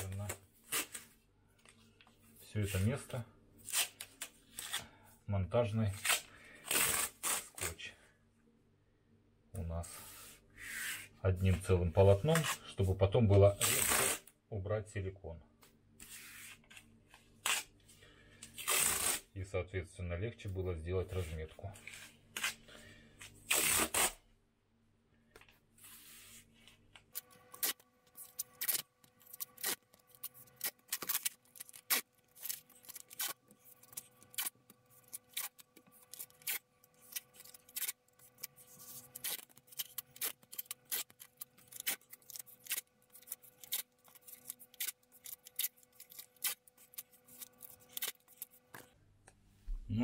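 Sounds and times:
tape crackling and ripping: 0.0 - 1.1, 6.0 - 7.8, 13.5 - 14.2, 18.6 - 19.3, 23.4 - 24.2, 27.1 - 49.0
masking tape ripping: 6.0 - 7.8, 13.6 - 14.2, 17.4 - 17.7, 18.6 - 19.3, 23.5 - 24.2, 27.2 - 48.6.

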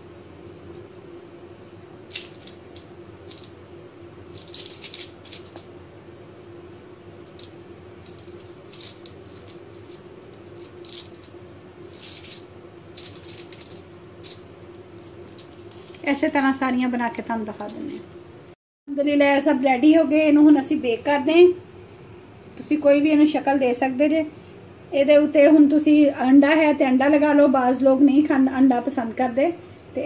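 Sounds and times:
steady low hum: 0.0 - 30.0
foil crinkling: 4.3 - 5.6, 8.1 - 16.2.

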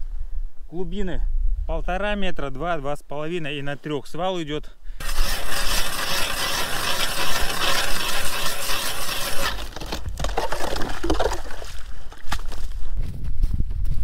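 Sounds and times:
ice auger grinding through ice: 5.0 - 11.7
water sloshing: 9.5 - 12.6.

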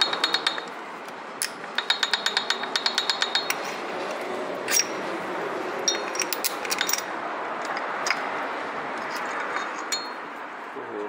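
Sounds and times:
metal engine parts clinking: 0.0 - 0.8, 1.4 - 3.9, 4.6 - 5.1, 5.8 - 8.3, 9.0 - 10.3.

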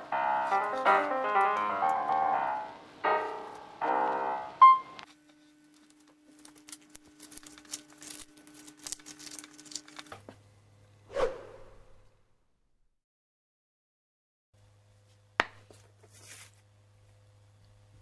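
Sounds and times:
piano music: 0.0 - 5.1
cling wrap crinkling: 5.1 - 10.3.

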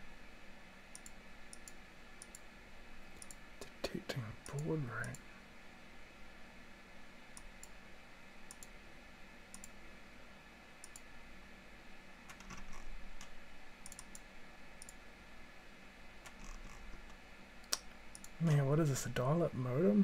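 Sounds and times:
faint steady hum: 0.0 - 20.0
computer mouse clicking: 0.9 - 2.5, 3.2 - 3.4, 4.4 - 5.2, 7.4 - 7.8, 8.5 - 8.8, 9.5 - 9.8, 10.8 - 11.1, 12.3 - 15.0, 16.2 - 18.4.

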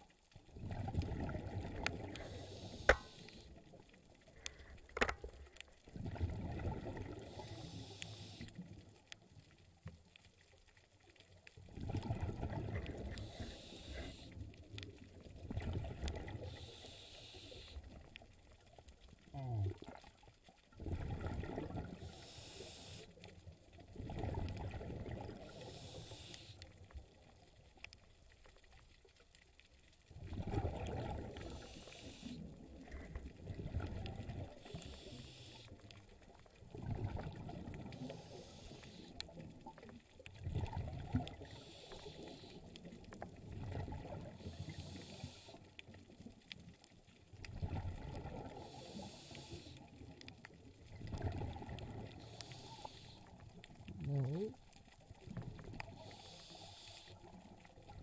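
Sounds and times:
exhaled bubbles rumbling: 0.0 - 7.7, 11.6 - 13.8, 14.4 - 16.7, 17.8 - 22.1, 23.5 - 25.9, 30.0 - 56.1, 57.2 - 58.0
regulator hiss on inhale: 2.0 - 3.6, 7.1 - 8.7, 13.0 - 14.6, 16.3 - 18.0, 22.0 - 23.4, 25.4 - 26.9, 31.4 - 33.2, 34.5 - 36.0, 37.8 - 39.4, 41.2 - 43.0, 44.3 - 46.0, 48.5 - 50.1, 52.1 - 53.6, 55.6 - 57.6.

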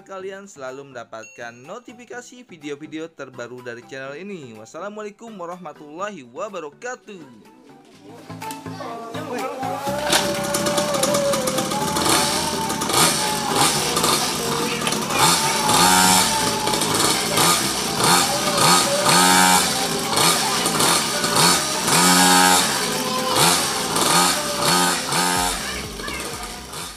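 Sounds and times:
dirt bike engine revving: 9.6 - 26.9.

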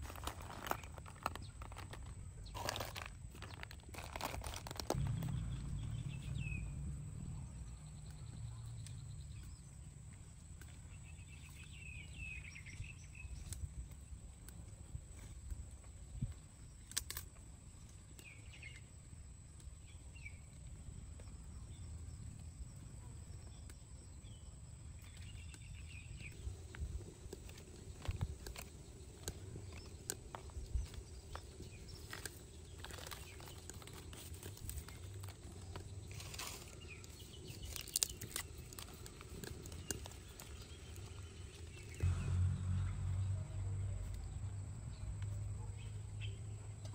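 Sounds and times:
shells and leaves clicking and rustling: 0.0 - 6.4, 7.8 - 21.5, 23.4 - 42.4
low outdoor rumble: 0.0 - 16.8, 17.4 - 46.9
faint chirps: 4.6 - 13.4.

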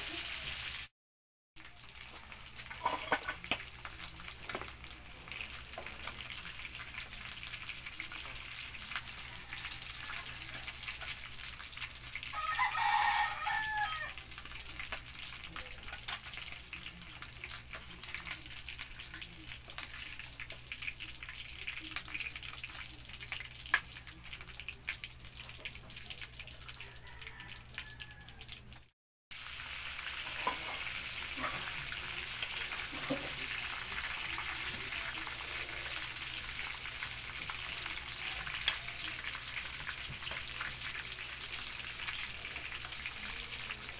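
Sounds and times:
oil sizzling and crackling: 0.0 - 0.9, 1.6 - 43.9
rooster crowing: 9.1 - 10.8, 12.3 - 14.2, 26.8 - 28.6.

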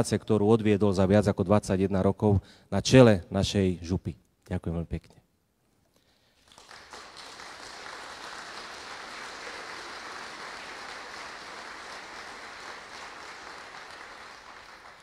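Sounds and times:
audience applause: 6.4 - 15.0.

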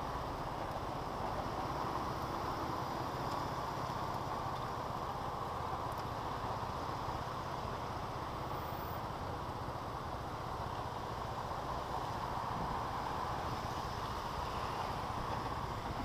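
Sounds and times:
rushing air and road noise: 0.0 - 16.0.

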